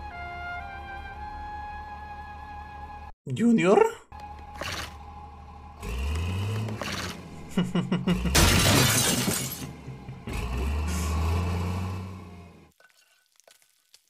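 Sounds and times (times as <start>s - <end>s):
motor revving: 4.3s - 8.4s, 10.0s - 12.7s
shattering glass: 8.3s - 9.8s.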